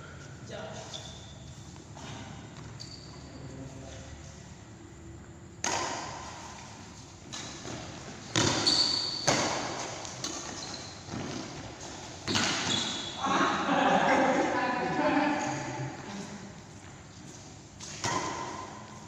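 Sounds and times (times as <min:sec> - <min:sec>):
shoe squeak on court: 0:00.8 - 0:03.5, 0:08.3 - 0:11.6, 0:12.2 - 0:13.2
racket striking shuttlecock: 0:05.6 - 0:06.5, 0:07.3 - 0:10.6, 0:12.2 - 0:12.7, 0:17.8 - 0:18.9.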